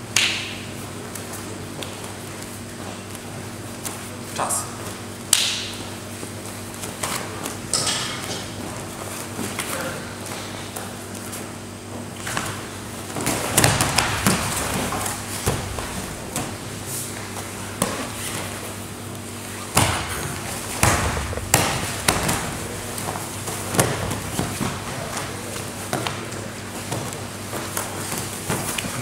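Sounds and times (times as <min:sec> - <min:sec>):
steady low hum: 0:00.0 - 0:29.0
bodies thumping on a mat: 0:19.5 - 0:25.2.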